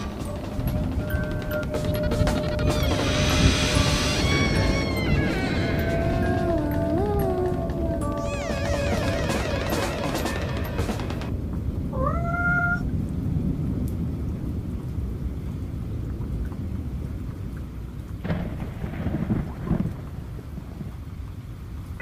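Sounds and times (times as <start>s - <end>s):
short rising call: 0.0s - 7.1s
thunder rumbling: 0.0s - 15.5s, 18.2s - 21.5s
steady rain: 0.0s - 22.0s.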